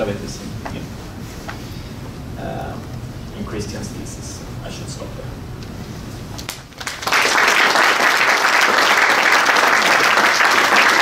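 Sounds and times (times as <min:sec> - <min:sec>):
audience applauding: 0:06.5 - 0:11.0.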